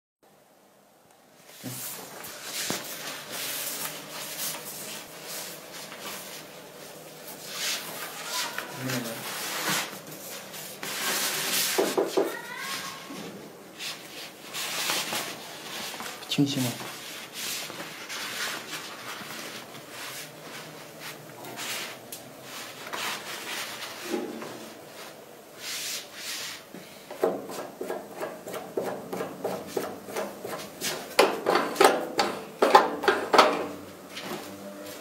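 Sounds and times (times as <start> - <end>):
rustling of sheet and film: 1.5 - 25.2.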